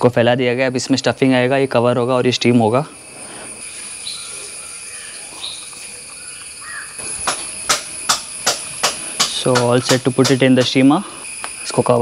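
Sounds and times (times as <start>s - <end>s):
high insect drone: 0.0s - 12.0s
leaves crackling against steel plate: 3.2s - 11.0s
crows cawing: 3.3s - 7.4s.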